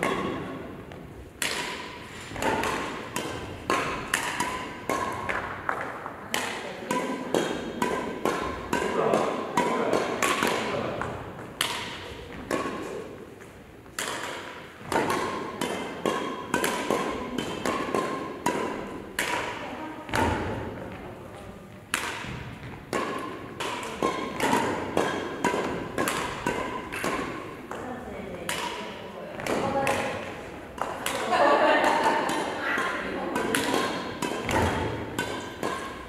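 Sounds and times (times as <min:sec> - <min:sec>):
rackets hitting shuttlecock: 0:00.0 - 0:36.0.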